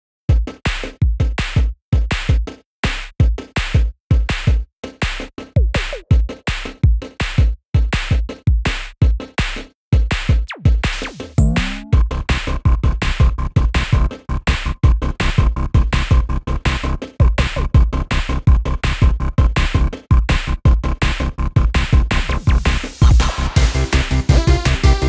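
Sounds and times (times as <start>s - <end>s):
electronic music with drum-machine beat: 3.2s - 12.1s, 12.8s - 25.0s
rising synth sweep: 11.4s - 12.0s.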